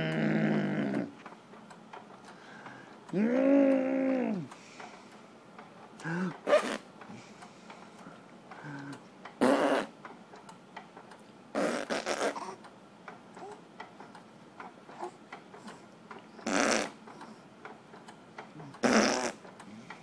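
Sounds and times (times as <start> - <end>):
throaty vocal noises: 0.0 - 1.2, 3.1 - 4.5.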